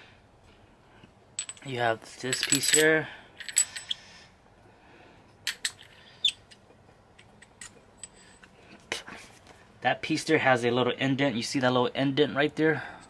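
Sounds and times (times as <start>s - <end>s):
metal parts clicking together: 1.4s - 4.0s, 5.5s - 6.6s, 7.2s - 8.5s.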